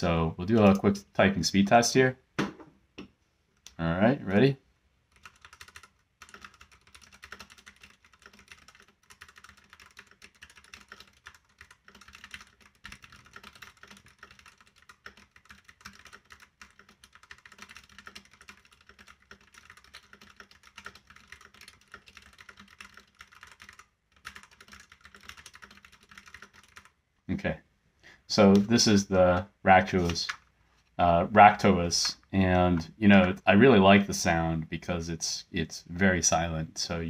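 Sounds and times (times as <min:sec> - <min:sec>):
fast typing on mechanical keyboard: 0:05.1 - 0:26.9.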